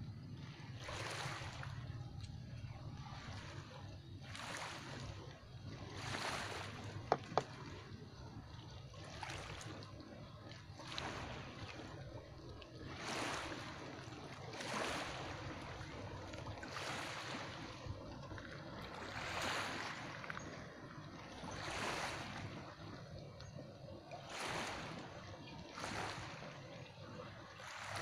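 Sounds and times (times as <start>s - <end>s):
low steady rumble: 0.0s - 28.0s
small waves lapping: 0.0s - 28.0s.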